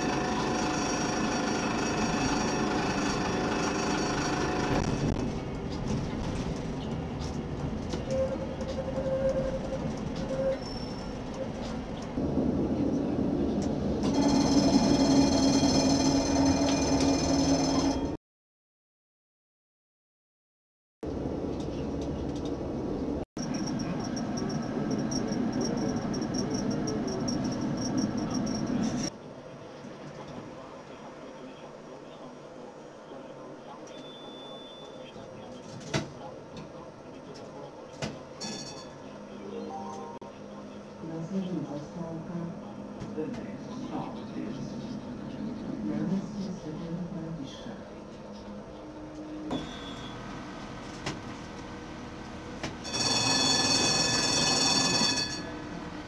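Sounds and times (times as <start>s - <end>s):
tram wheels squealing: 0.0s - 5.1s, 7.9s - 11.9s, 14.0s - 18.2s, 23.4s - 29.1s, 48.3s - 50.3s
tram rumbling on rails: 0.0s - 18.2s, 21.1s - 33.8s, 35.1s - 56.0s.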